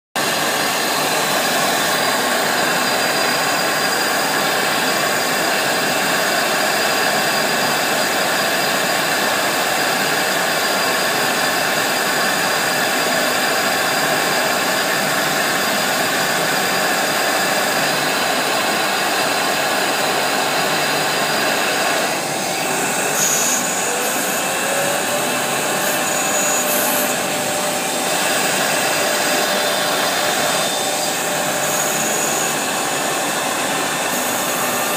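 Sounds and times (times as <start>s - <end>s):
router spindle whirring: 0.2s - 34.9s
vacuum blower: 0.2s - 34.9s.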